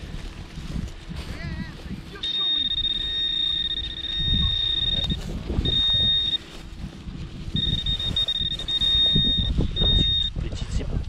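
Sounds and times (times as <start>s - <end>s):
high electronic tone: 2.2s - 6.7s, 7.5s - 10.3s.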